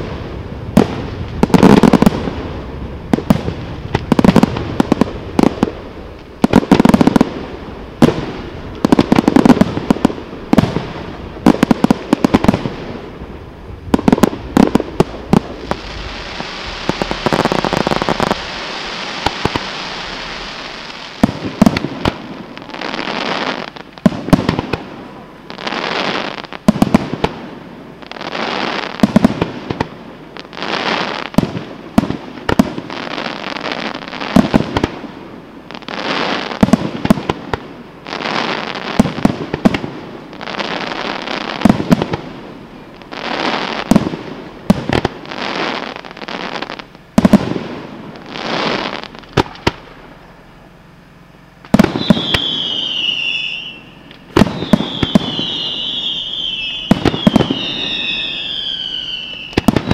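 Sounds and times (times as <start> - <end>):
firework crackling: 0.0 - 59.9
firework whistles: 13.9 - 37.4, 38.0 - 50.6, 51.6 - 59.9.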